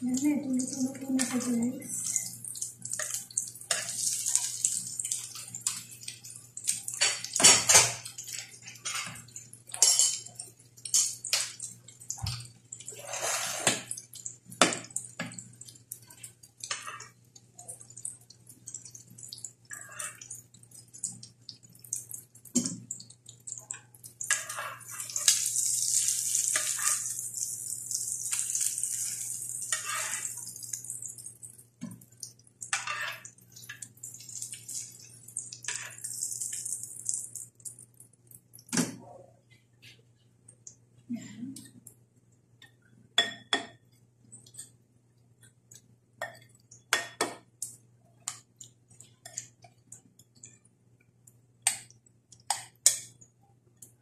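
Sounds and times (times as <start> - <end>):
fritters sizzling in oil: 0.5 - 38.7
metal spatula scraping pan: 12.9 - 13.8, 29.0 - 30.4.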